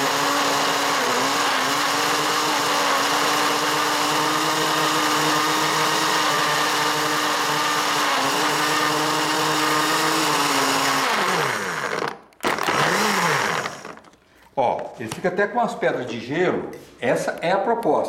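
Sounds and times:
blender motor running: 0:00.0 - 0:14.2.

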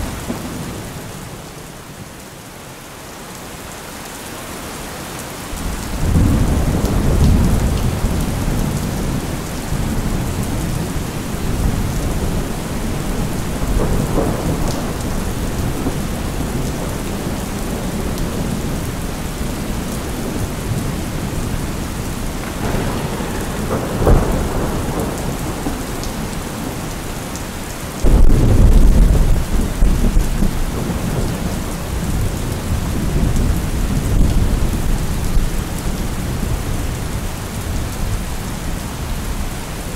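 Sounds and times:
steady rain: 0:00.0 - 0:39.9
thunder rolling: 0:05.6 - 0:27.2, 0:28.0 - 0:36.6
sharp thunder crack: 0:22.4 - 0:26.9, 0:28.0 - 0:31.4.

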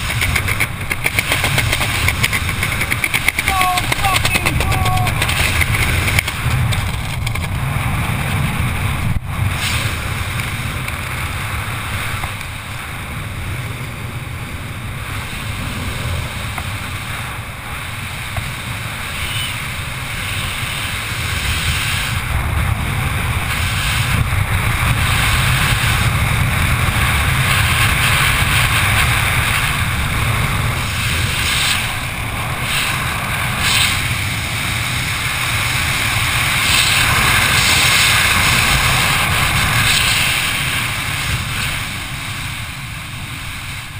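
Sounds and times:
wind buffeting microphone: 0:00.0 - 0:43.9.

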